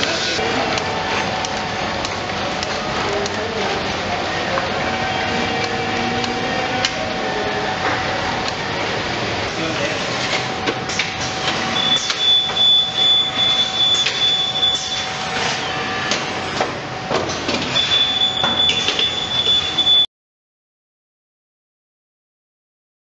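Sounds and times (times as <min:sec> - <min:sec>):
conveyor machinery hum: 0:00.0 - 0:20.1
high thin machine whine: 0:00.0 - 0:20.1.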